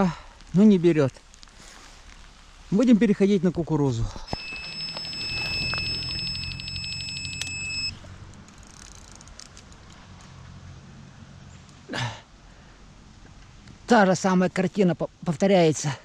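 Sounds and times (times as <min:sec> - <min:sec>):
bite alarm beeping: 0:04.3 - 0:08.0.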